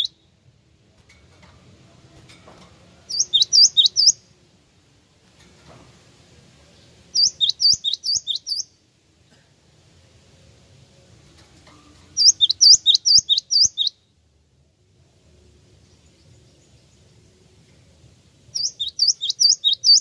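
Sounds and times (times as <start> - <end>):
bird singing high notes: 3.1 - 4.2, 12.2 - 14.1, 18.6 - 20.0.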